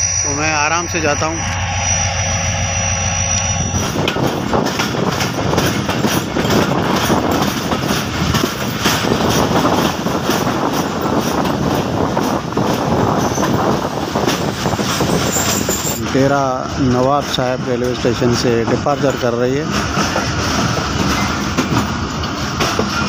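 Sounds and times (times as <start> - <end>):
train rumbling on rails: 0.0 - 23.0
wheels clacking over track: 4.0 - 23.0.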